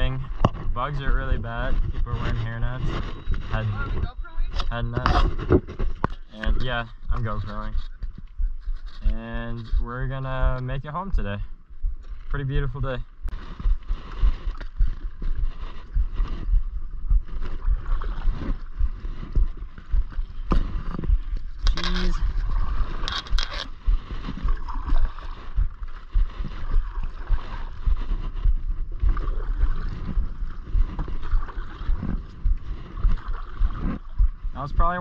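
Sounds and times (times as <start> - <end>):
low bumps: 0.0 - 35.0
water gurgling along hull: 0.0 - 35.0
paddle strokes splashing: 13.3 - 34.5.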